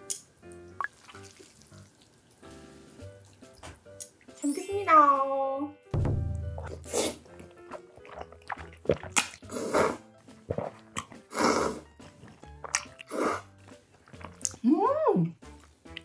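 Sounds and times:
light background music: 0.0s - 16.0s
noodle slurping: 6.6s - 14.6s
chewing clicks: 14.0s - 14.6s.

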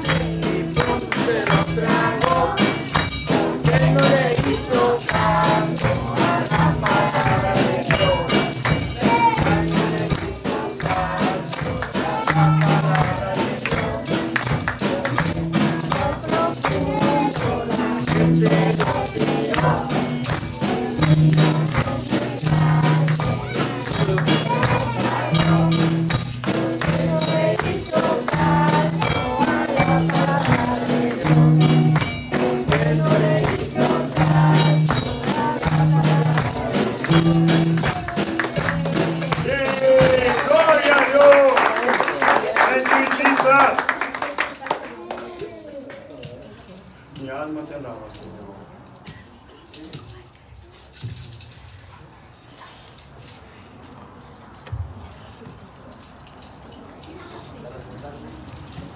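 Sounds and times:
voices singing: 0.0s - 43.9s
acoustic guitar: 0.0s - 47.4s
hand tambourines shaking: 0.0s - 58.9s
small bells jingling: 0.0s - 58.9s.

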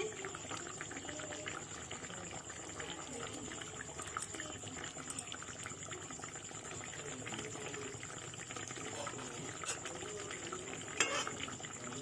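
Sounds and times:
curry bubbling in a pan: 0.0s - 12.0s.

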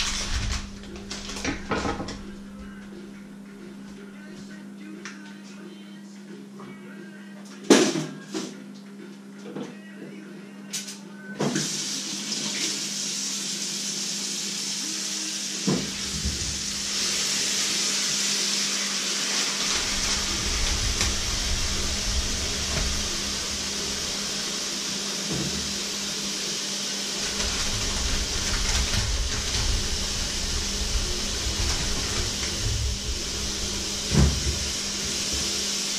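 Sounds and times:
tap running into a sink: 25.2s - 25.8s.

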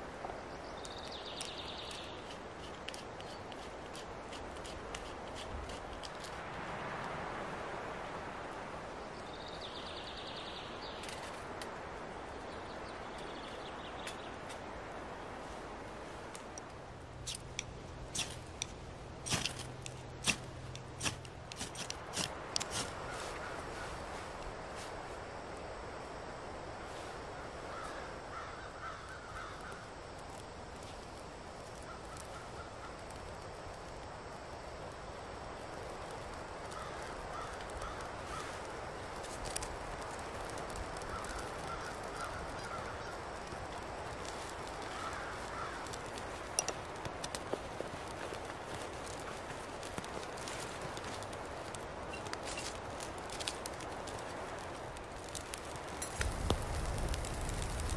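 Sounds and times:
rushing outdoor background noise: 0.0s - 57.9s
knife scraping wooden stick: 2.2s - 6.2s, 19.3s - 23.0s.

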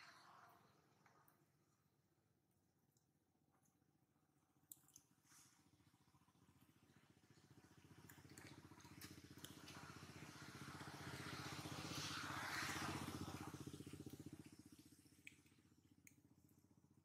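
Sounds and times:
passing vehicle engine drone: 6.7s - 15.7s.

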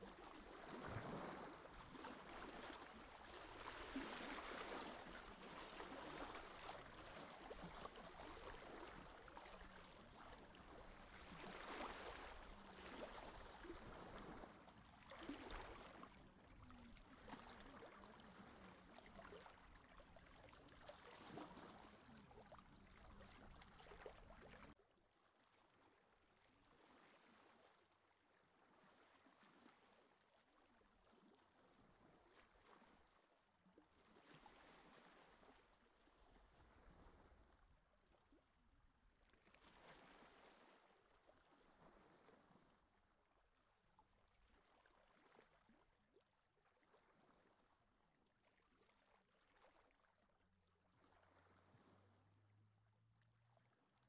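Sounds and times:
sea water lapping: 0.0s - 24.8s.

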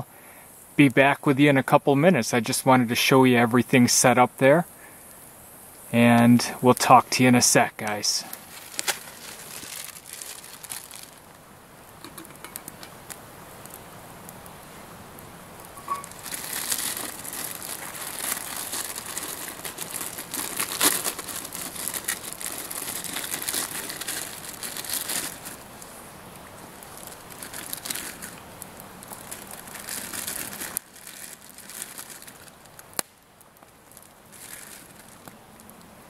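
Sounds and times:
plastic wrapper crinkling and tearing: 7.8s - 11.4s, 15.8s - 26.0s, 26.7s - 35.8s.

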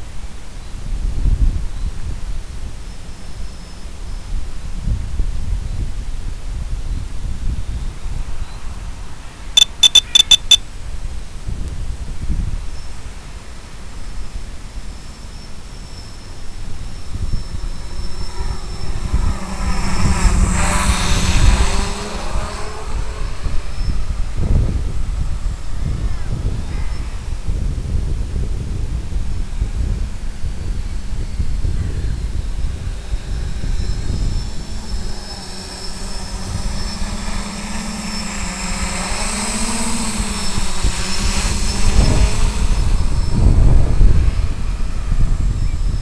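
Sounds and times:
low wind rumble: 18.4s - 46.0s
model aircraft propellers buzzing: 29.5s - 46.0s.

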